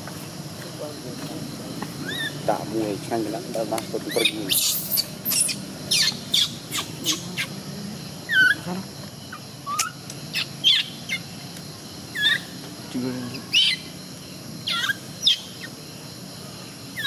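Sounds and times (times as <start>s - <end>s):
baby monkey crying squeals: 2.0s - 2.5s, 4.1s - 7.6s, 8.3s - 8.7s, 9.3s - 11.3s, 12.1s - 12.6s, 13.3s - 13.9s, 14.6s - 15.7s.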